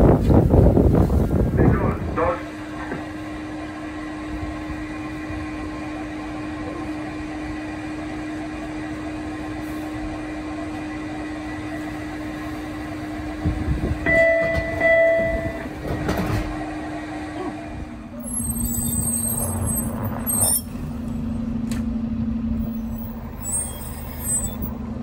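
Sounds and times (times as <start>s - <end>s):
subway car equipment humming: 0.0s - 25.0s
door chime: 14.1s - 15.6s.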